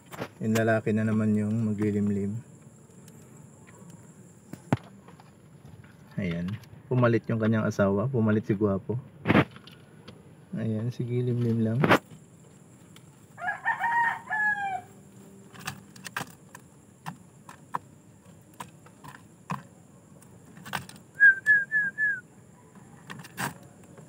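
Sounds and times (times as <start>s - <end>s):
rooster crowing: 13.4s - 15.1s, 22.2s - 24.0s.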